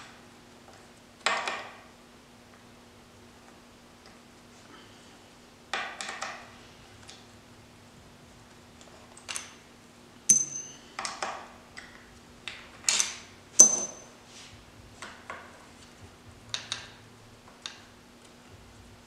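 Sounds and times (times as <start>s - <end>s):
metal bolts clinking: 10.3s - 10.8s, 12.9s - 14.1s.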